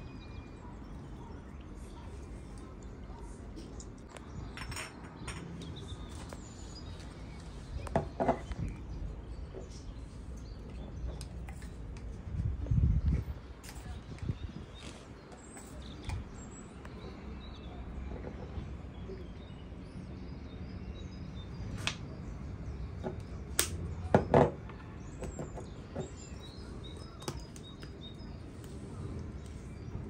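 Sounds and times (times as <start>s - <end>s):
faint bird chirping: 0.0s - 30.0s
objects clicking and knocking: 3.6s - 6.4s.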